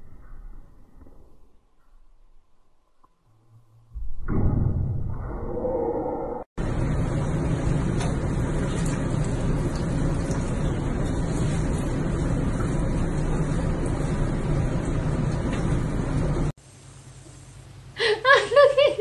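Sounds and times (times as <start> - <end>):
water rushing in bathtub: 6.6 - 16.5.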